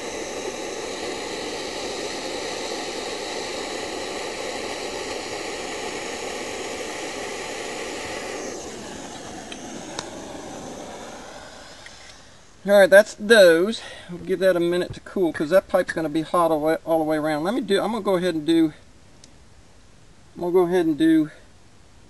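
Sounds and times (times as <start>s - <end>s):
gas torch flame hissing: 0.0s - 14.6s.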